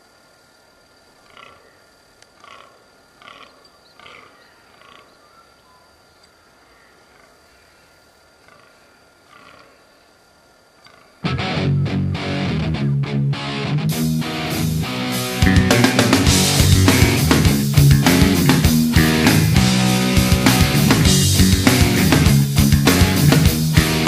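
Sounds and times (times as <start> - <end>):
distant harsh animal calls: 1.2 - 12.0
rock music with electric guitar: 11.2 - 24.0.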